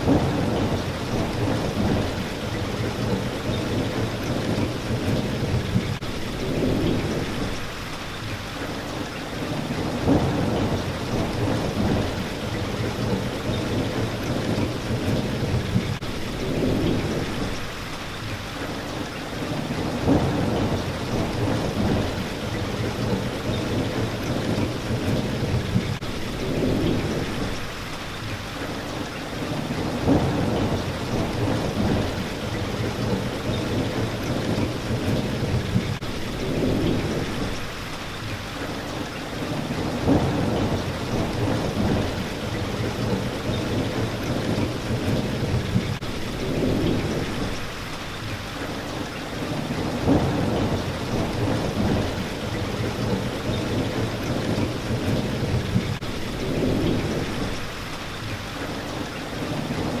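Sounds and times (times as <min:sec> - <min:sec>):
sharp thunder claps: 0:00.0 - 0:07.6, 0:49.8 - 0:57.6
low thunder rumbling: 0:00.0 - 0:07.8, 0:09.5 - 0:17.8, 0:19.5 - 0:27.8, 0:29.4 - 0:37.9, 0:39.4 - 0:47.8, 0:49.4 - 0:57.9
steady rain: 0:00.0 - 1:00.0.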